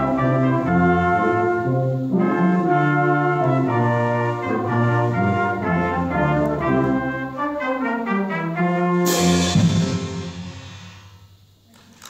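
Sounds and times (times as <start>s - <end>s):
brass ensemble playing: 0.0s - 11.4s
cymbal crash: 9.0s - 11.5s.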